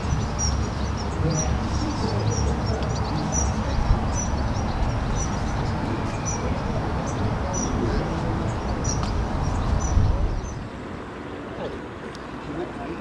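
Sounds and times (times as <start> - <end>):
small bird chirping: 8.4 - 10.6.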